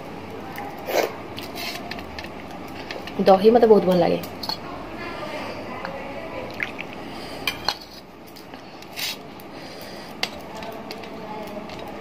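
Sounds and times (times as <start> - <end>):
metal dishes clinking: 7.4 - 8.5.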